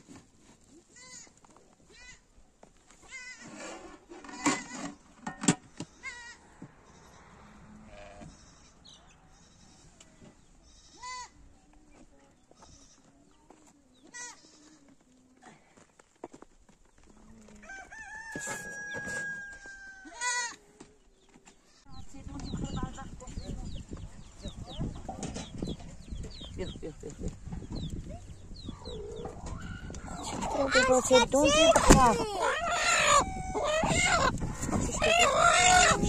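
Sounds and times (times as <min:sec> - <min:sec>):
rooster crowing: 0:17.6 - 0:20.2.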